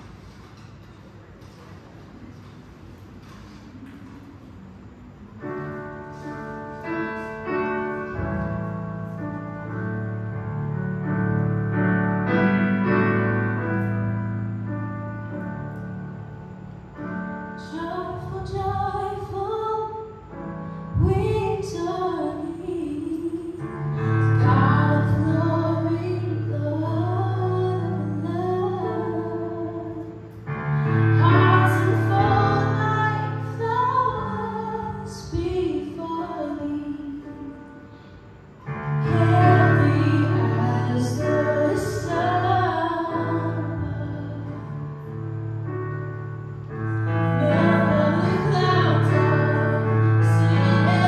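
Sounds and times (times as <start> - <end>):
woman singing slow song: 17.0 - 37.9, 38.7 - 45.1, 47.2 - 51.0.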